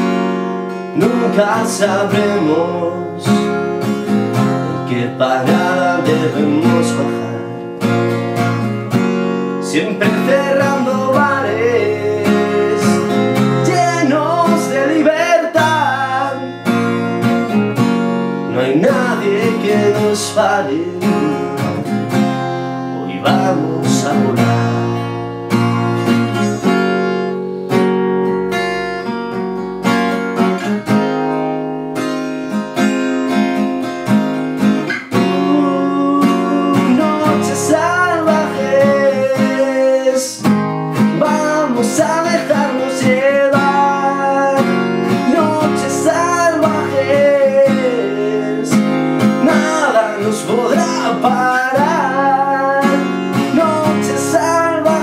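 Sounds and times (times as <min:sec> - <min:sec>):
acoustic guitar strummed: 0:00.0 - 0:55.0
man singing: 0:00.8 - 0:08.1, 0:09.5 - 0:17.2, 0:18.3 - 0:27.4, 0:34.8 - 0:55.0.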